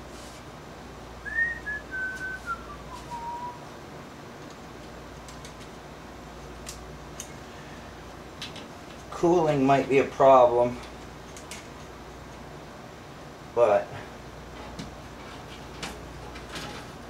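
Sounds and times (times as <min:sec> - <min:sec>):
person whistling a tune: 0:01.2 - 0:03.6.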